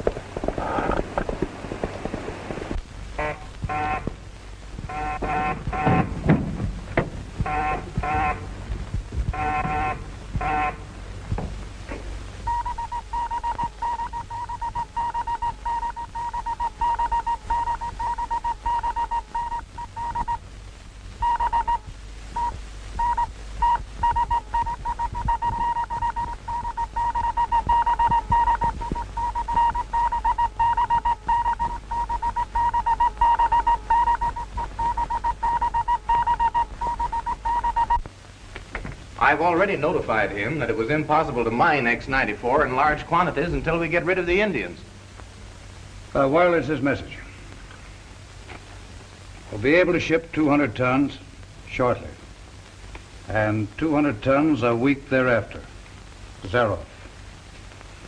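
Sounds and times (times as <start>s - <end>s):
morse code beeps: 4.9s - 6.1s, 7.4s - 8.4s, 9.3s - 10.8s, 12.5s - 20.4s, 21.2s - 21.8s, 22.4s - 38.0s.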